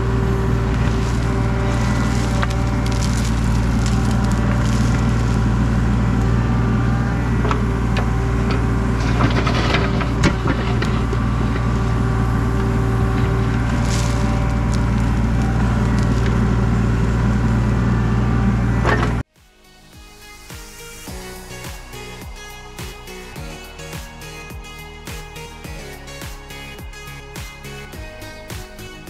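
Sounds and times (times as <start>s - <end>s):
bucket crunching through ground: 0.0s - 17.6s
excavator diesel engine running: 0.0s - 19.3s.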